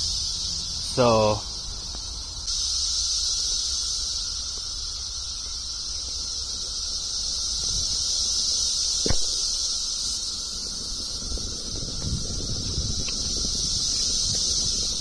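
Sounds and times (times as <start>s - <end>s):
cicadas droning: 0.0s - 15.0s
brief knock: 9.0s - 9.4s.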